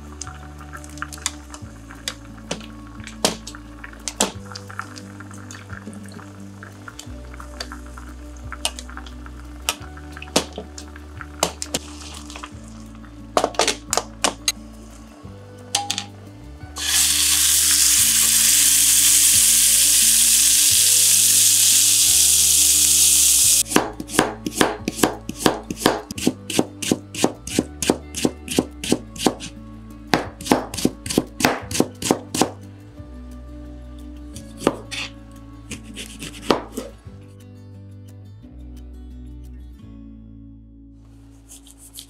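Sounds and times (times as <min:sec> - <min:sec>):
meat sizzling in a frying pan: 0:16.8 - 0:23.6
knife slicing on cutting board: 0:35.7 - 0:37.0.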